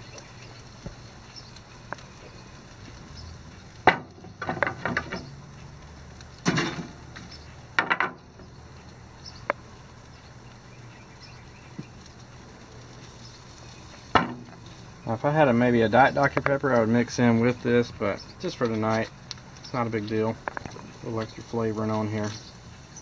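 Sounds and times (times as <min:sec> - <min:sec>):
spoon and tongs clattering on grill: 0:03.8 - 0:05.4, 0:06.4 - 0:08.3.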